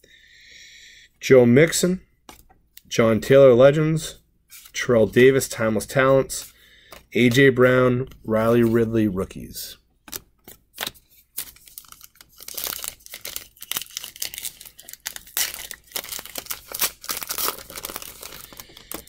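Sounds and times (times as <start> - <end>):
foil wrapper crinkling: 10.8 - 19.0.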